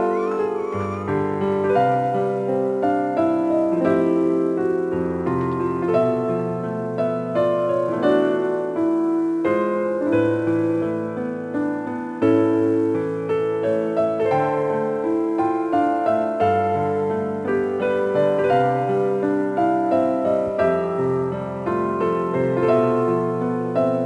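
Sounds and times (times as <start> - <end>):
piano music: 0.0 - 24.0.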